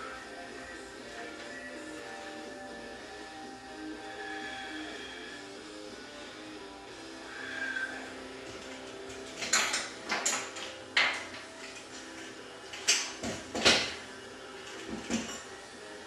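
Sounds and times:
steel pieces clinking on workbench: 8.8 - 13.9.

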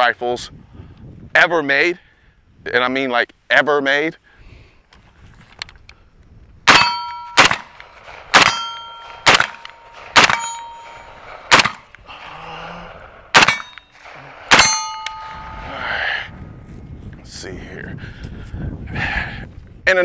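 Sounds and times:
rifle single shots: 6.6 - 12.1, 13.1 - 15.7
metallic ring of steel targets: 6.7 - 11.9, 13.3 - 15.7.

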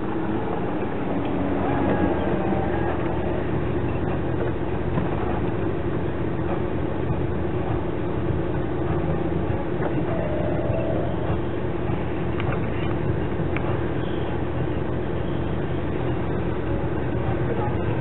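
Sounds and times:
vehicle engine rumble: 0.0 - 18.0
vehicle knocks and rattles: 0.4 - 14.8.

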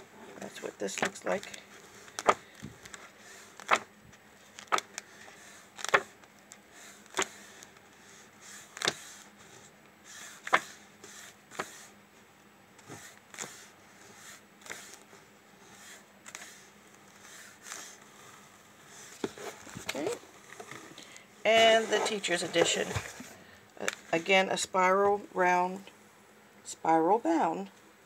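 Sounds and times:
book pages turning: 0.3 - 11.9, 12.8 - 15.1, 15.7 - 21.0.

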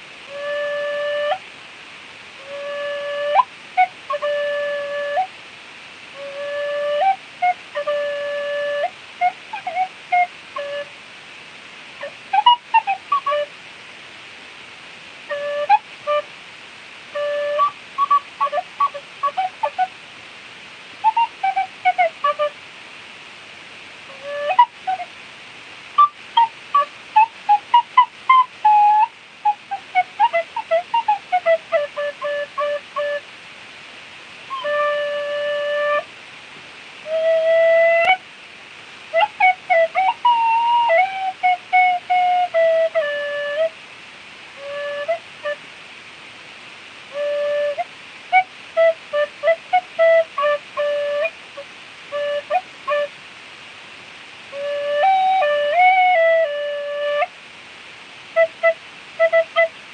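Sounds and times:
faint hiss: 0.0 - 59.9
tin whistle playing: 0.3 - 1.4, 2.4 - 5.3, 6.2 - 10.9, 12.0 - 13.5, 15.3 - 16.2, 17.1 - 19.9, 21.0 - 22.5, 24.1 - 25.0, 26.0 - 33.2, 34.5 - 36.1, 37.0 - 38.2, 39.1 - 43.7, 44.6 - 45.6, 47.1 - 51.3, 52.1 - 53.1, 54.5 - 57.3, 58.4 - 59.7.

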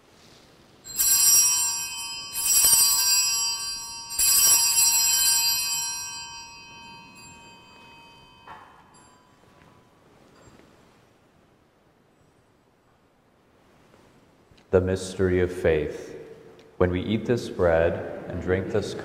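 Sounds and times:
altar bell ringing: 0.8 - 10.7.

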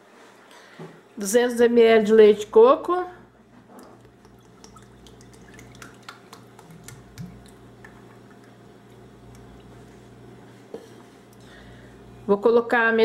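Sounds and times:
liquid pouring into a plastic jug: 3.6 - 10.0.

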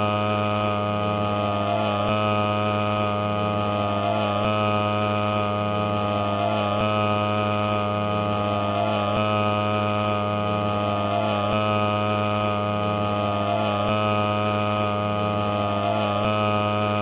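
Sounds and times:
droning hum with overtones: 0.0 - 17.0.

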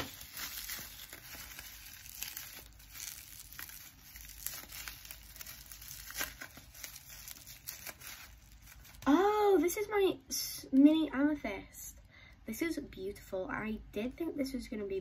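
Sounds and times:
packaging crinkling and tearing: 0.0 - 9.4.

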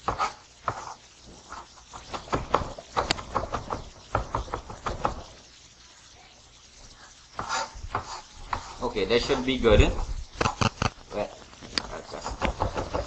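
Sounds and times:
knife chopping on plastic board: 12.3 - 13.0.

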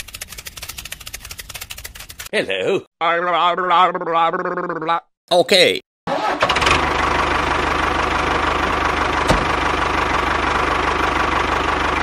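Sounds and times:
tractor engine idling: 6.1 - 12.0.

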